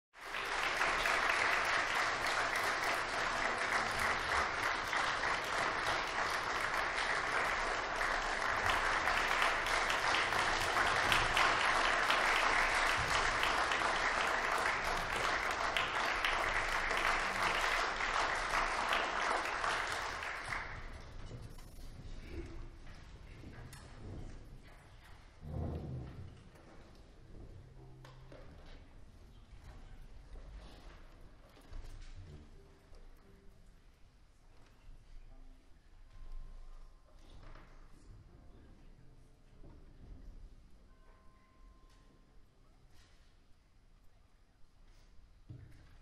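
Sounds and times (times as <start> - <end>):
audience applauding: 0.2 - 21.2.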